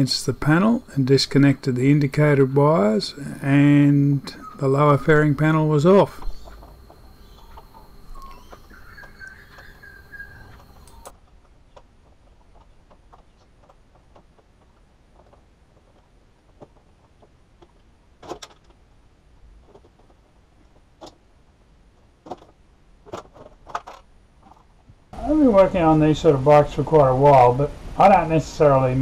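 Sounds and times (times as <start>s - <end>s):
plastic panel squeaking: 4.2s - 18.8s.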